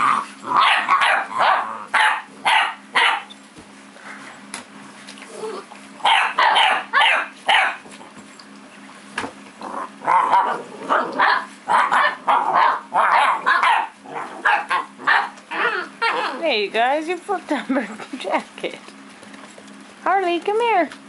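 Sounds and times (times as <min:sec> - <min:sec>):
puppies barking and yipping: 0:00.0 - 0:03.5, 0:05.7 - 0:08.5, 0:09.8 - 0:16.4.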